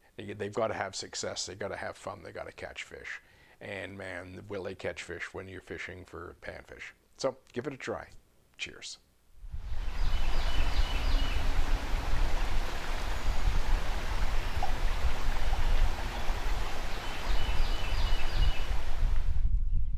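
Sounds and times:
wind rumbling on microphone: 9.4 - 19.9
bird chirping: 9.7 - 11.9, 14.3 - 18.9
flowing river water: 9.7 - 19.2.

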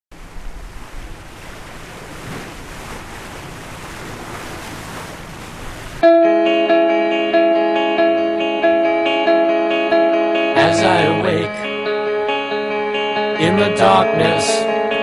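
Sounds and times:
wind: 0.1 - 6.0
sea waves: 0.1 - 12.2, 13.4 - 14.7
distorted guitar chords: 6.0 - 15.0.

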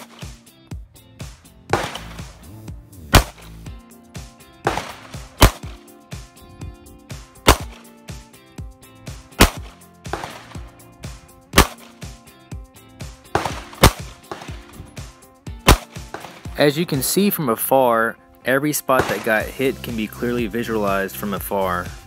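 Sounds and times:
pistol shots: 0.0 - 0.4, 1.7 - 3.6, 4.6 - 6.0, 7.4 - 8.0, 9.3 - 10.9, 11.5 - 12.2, 13.2 - 16.6, 18.9 - 19.9.

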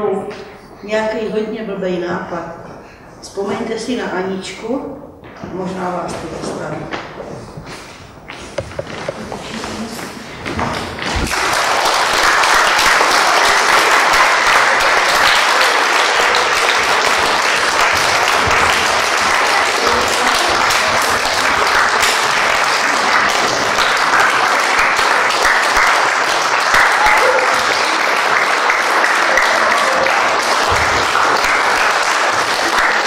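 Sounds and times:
audience applauding: 10.6 - 33.0.

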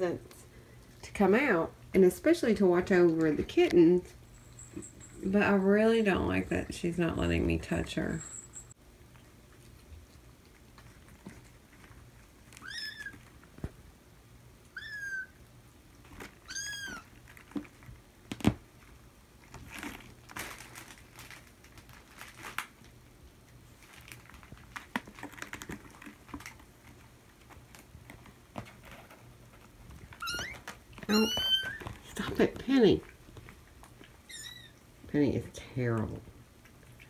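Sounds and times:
kittens meowing: 12.6 - 13.2, 14.7 - 15.4, 16.4 - 17.1, 30.2 - 31.9, 34.2 - 34.8.

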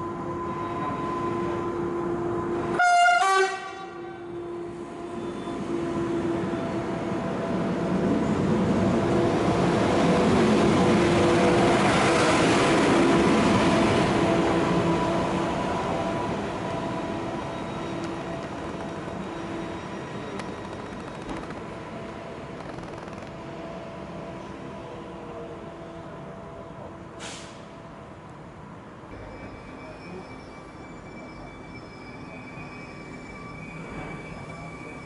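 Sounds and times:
two-tone train horn toot: 2.8 - 5.6
electric train rolling past: 4.0 - 35.0.

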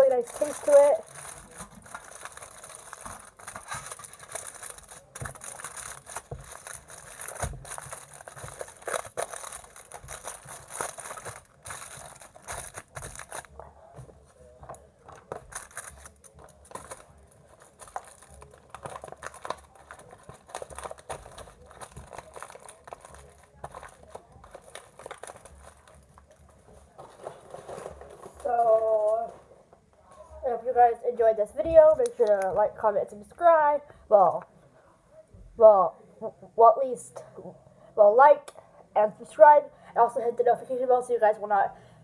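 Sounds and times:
snack packaging rustling: 0.0 - 29.4.

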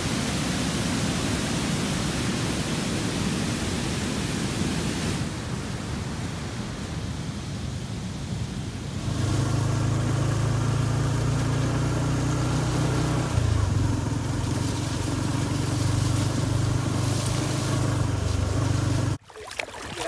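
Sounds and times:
motorcycle engine running: 9.0 - 19.2.

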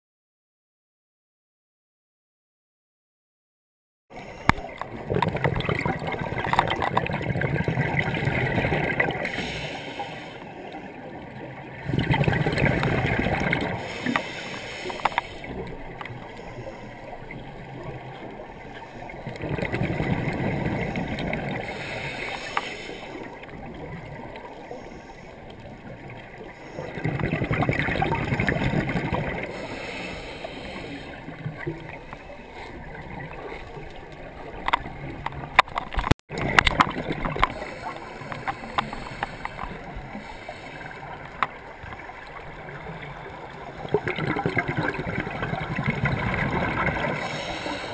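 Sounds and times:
exhaled bubbles underwater: 4.6 - 47.9
water hiss: 8.8 - 10.6, 12.7 - 17.1, 20.2 - 23.4, 29.2 - 32.0, 37.3 - 44.0, 44.6 - 47.9.

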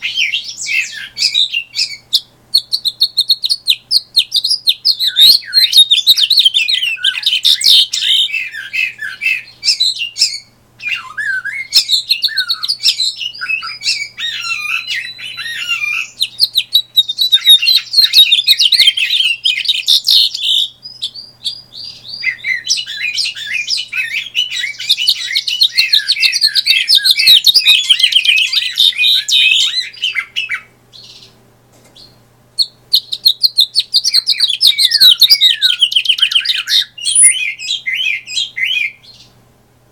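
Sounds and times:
finch warbling song: 2.6 - 20.7, 32.6 - 39.0.

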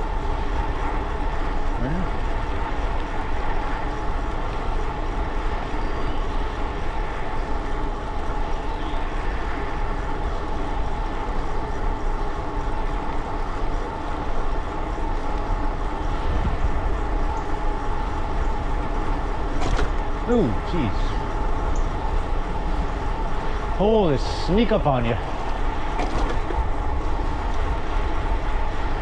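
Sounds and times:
wind buffeting microphone: 0.0 - 20.3
continuous rolling rush: 0.0 - 29.0
steady mid-high whine: 0.0 - 29.0.

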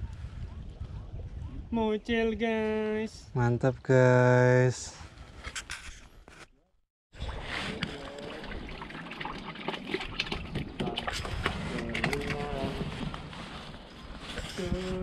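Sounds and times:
water sloshing and trickling: 5.1 - 15.0.

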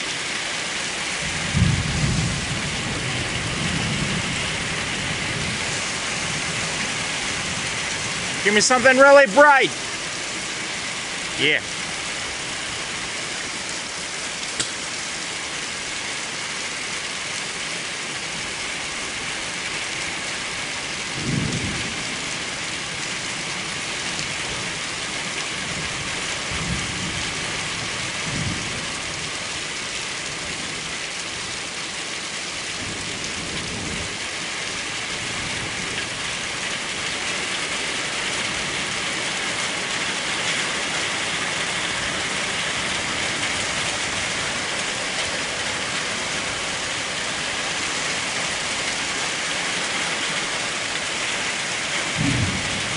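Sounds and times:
heavy rain: 0.0 - 52.9
thunder rumbling: 1.2 - 8.8, 52.1 - 52.9.

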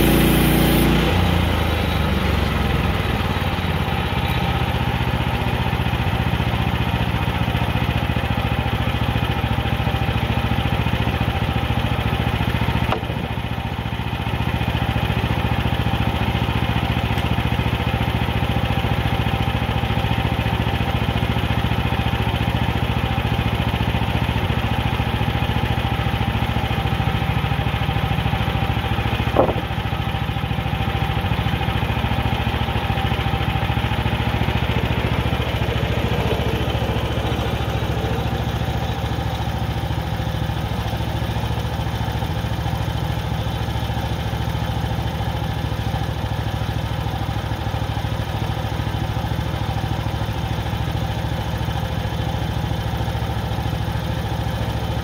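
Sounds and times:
small gas engine running: 0.0 - 55.0
single knock: 29.4 - 29.7.

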